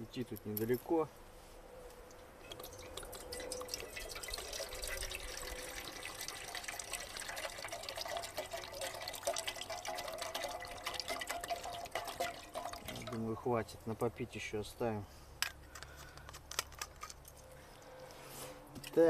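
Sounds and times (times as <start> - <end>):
water pouring into metal pot: 2.5 - 13.2.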